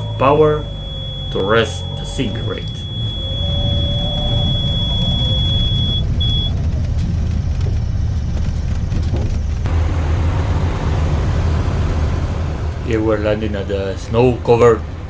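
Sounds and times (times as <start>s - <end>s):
high warning tone: 0.0s - 6.6s.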